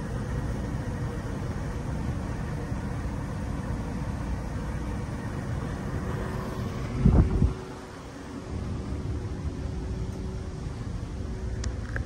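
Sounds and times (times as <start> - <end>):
low rumble: 5.0 - 12.0.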